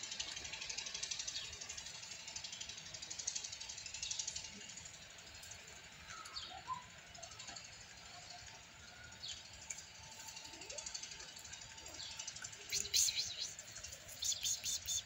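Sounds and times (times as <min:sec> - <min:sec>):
short high calls: 0:12.7 - 0:15.0.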